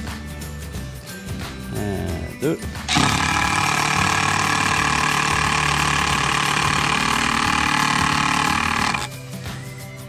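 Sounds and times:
impact driver hammering screw: 2.9 - 9.1.

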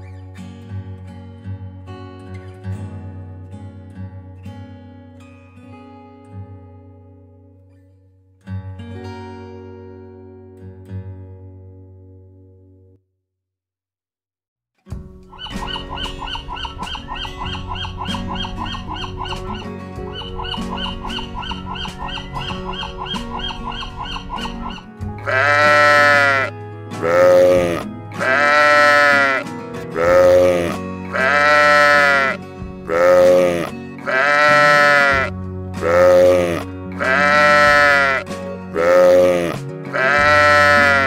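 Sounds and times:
background music: 14.9 - 41.0
sheep bleating: 24.7 - 41.0.

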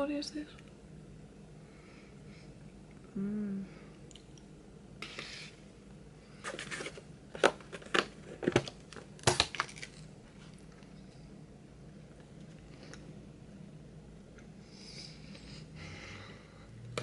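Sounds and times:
person humming: 3.1 - 3.9
plastic packaging crinkling: 6.5 - 10.1.

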